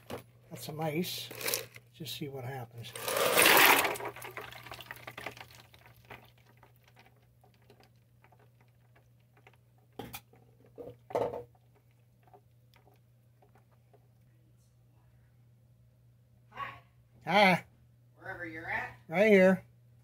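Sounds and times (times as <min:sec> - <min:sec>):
ice cubes crackling in water: 0:01.1 - 0:01.9, 0:02.8 - 0:10.0
faint low hum: 0:04.0 - 0:20.0.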